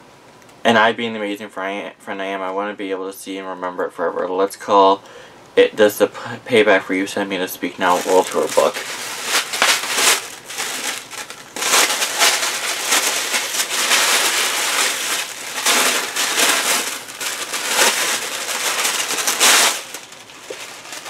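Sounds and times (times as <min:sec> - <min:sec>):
tissue paper tearing and crumpling: 0:07.8 - 0:21.0.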